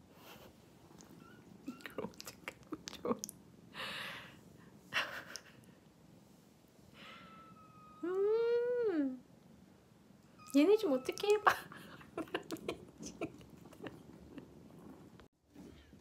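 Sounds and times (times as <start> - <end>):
kittens sucking and smacking: 0.8 - 3.4, 11.0 - 15.3.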